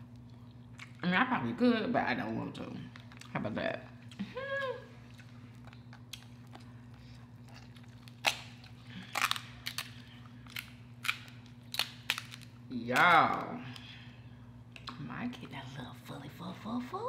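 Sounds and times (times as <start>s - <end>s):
crab shell cracking: 7.5s - 13.4s.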